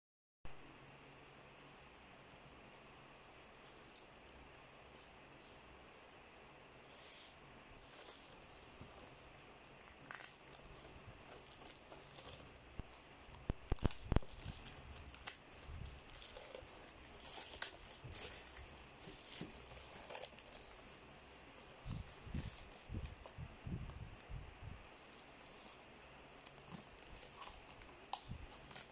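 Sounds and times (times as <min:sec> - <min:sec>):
plastic wrap tearing and crinkling: 0:06.9 - 0:28.9
scissors cutting plastic wrap: 0:13.3 - 0:23.3, 0:26.4 - 0:28.9.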